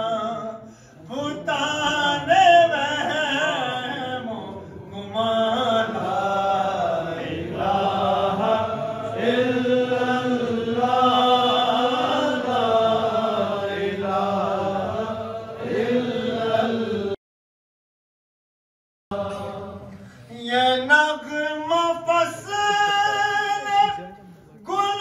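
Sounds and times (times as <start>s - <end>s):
man chanting a devotional poem: 20.3s - 25.0s.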